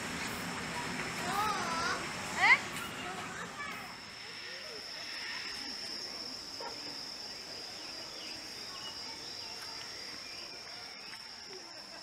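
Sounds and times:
insects shrilling: 3.9s - 11.4s.

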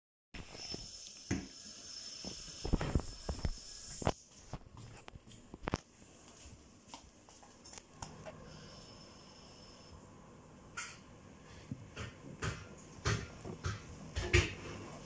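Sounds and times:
footsteps on hard floor: 2.2s - 8.0s.

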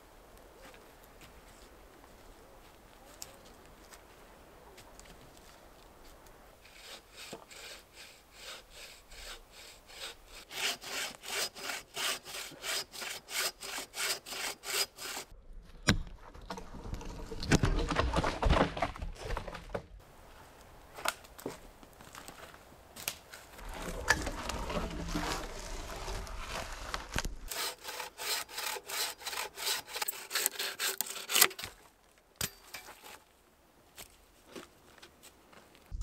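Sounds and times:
hand saw cutting wood: 6.6s - 15.3s, 27.5s - 31.7s
wood scraping and handling: 14.3s - 20.0s, 23.3s - 31.9s.

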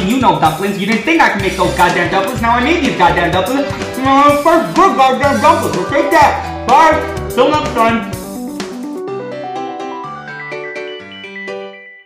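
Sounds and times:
bass line: 1.4s - 9.2s
light tune of pitched notes: 1.5s - 12.0s.

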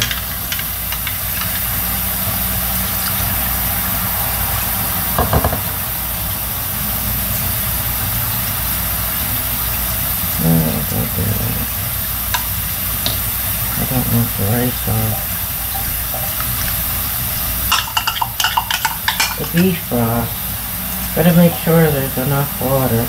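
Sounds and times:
whirring fan hum: 0.0s - 23.0s
spoon knocking in glass cup: 17.7s - 19.6s.

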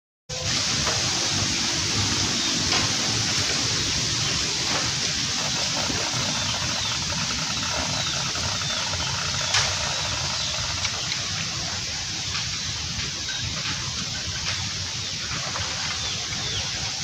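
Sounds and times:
outdoor background hiss: 0.3s - 17.0s
sharp click: 9.2s - 10.0s.

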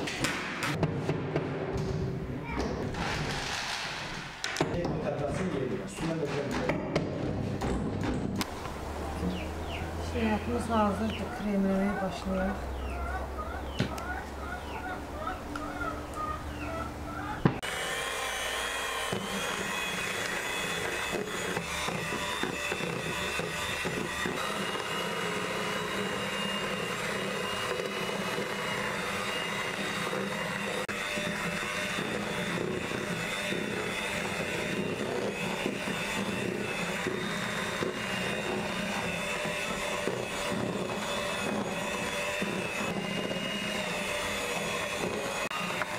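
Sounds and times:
electric hand mixer whining: 15.5s - 45.9s.

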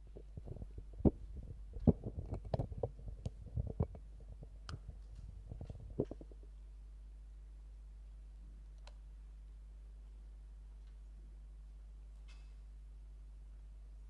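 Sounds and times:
microphone handling noise: 0.0s - 6.5s
steady low hum: 0.0s - 14.0s.

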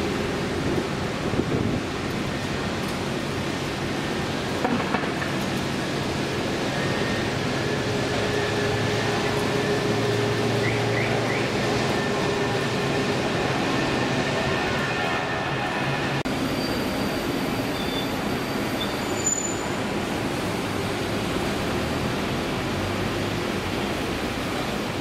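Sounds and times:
jet engines whining: 5.6s - 18.7s.

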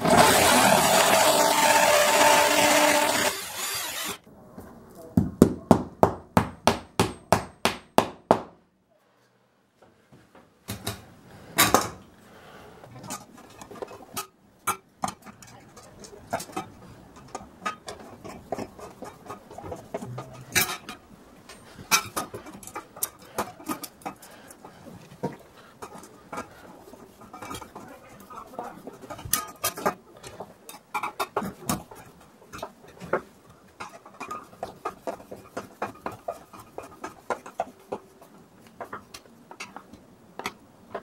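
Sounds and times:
electric drill boring into tile: 0.0s - 4.2s
hammer tapping: 5.2s - 8.5s.

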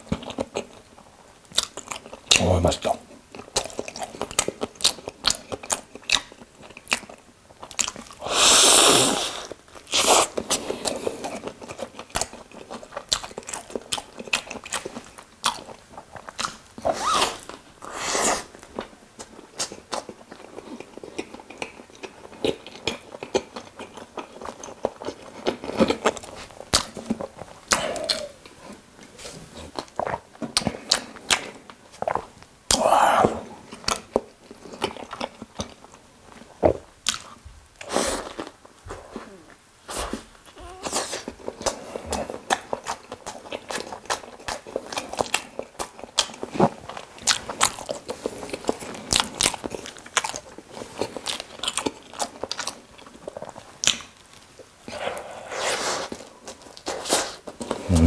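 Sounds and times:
crunchy chewing and biting: 3.3s - 28.8s, 40.0s - 58.0s
wet mouth sounds: 27.7s - 28.6s, 54.9s - 58.0s.

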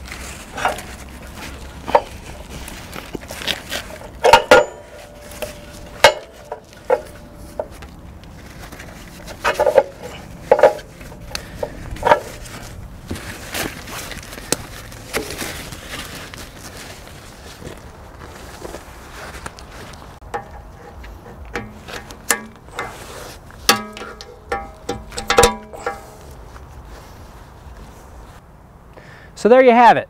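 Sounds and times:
metal fittings clinking: 3.4s - 7.8s, 9.4s - 12.6s, 20.3s - 26.4s.

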